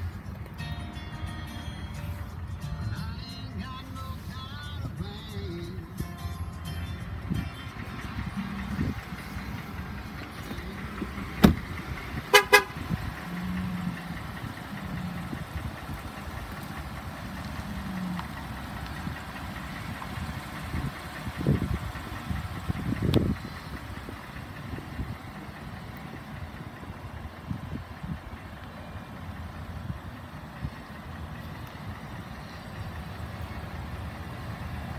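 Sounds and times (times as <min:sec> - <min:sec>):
outdoor background noise: 0:00.0 - 0:34.9
soft low thumps: 0:07.1 - 0:12.2
vehicle door shutting: 0:10.3 - 0:12.6
car horn chirps: 0:12.2 - 0:13.0.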